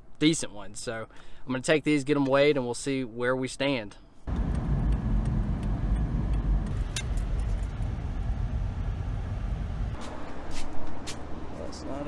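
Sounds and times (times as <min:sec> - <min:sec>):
car engine and road rumble: 0:04.3 - 0:12.0.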